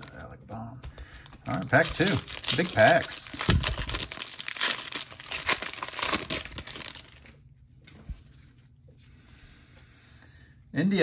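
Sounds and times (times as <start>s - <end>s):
card pack wrapper tearing: 1.4s - 7.4s.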